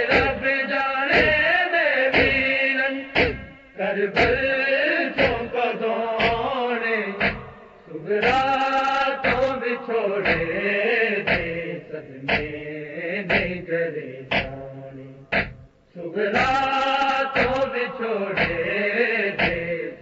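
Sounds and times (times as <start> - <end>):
men chanting in unison: 0.0 - 15.4, 16.0 - 20.0
hands beating on chest: 2.2 - 2.4, 3.2 - 3.5, 4.2 - 4.4, 6.2 - 6.4, 7.2 - 7.4, 10.2 - 10.5, 11.3 - 11.5, 12.3 - 12.5, 13.3 - 13.6, 14.3 - 14.6, 15.3 - 15.7.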